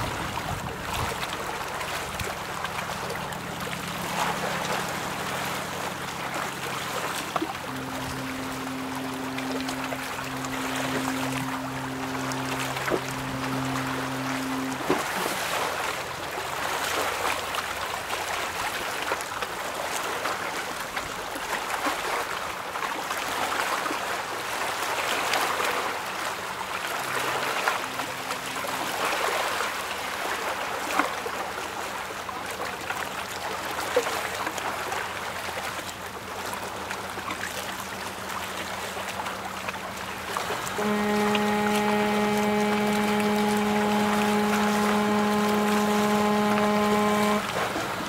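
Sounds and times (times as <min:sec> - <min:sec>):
river water lapping and splashing: 0:00.0 - 0:48.0
faint low hum: 0:02.0 - 0:15.3.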